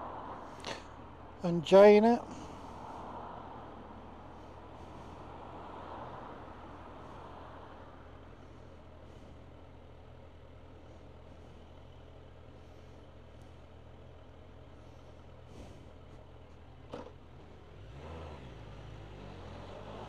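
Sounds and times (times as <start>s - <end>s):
motorcycle engine idling: 7.8s - 17.6s.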